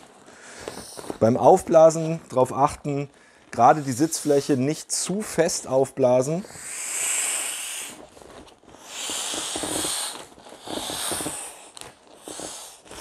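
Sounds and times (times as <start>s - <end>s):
air hissing out of cushion valve: 6.5s - 8.0s, 8.8s - 13.0s.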